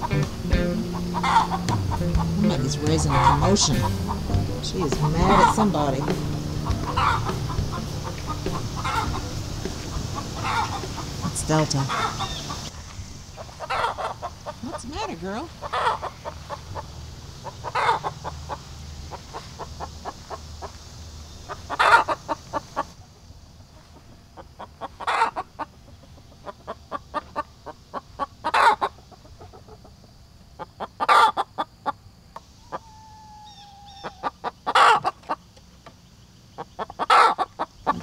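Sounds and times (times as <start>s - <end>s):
hen squawking: 0.0s - 12.7s, 13.4s - 20.7s, 21.5s - 22.9s, 24.8s - 25.6s, 32.6s - 35.2s, 36.7s - 38.0s
hen clucking quickly: 0.0s - 23.0s, 23.6s - 35.6s, 36.5s - 38.0s.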